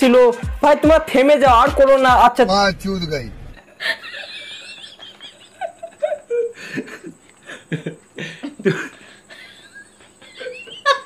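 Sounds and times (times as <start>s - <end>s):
man laughing: 3.6s - 11.0s
woman laughing: 3.6s - 11.0s.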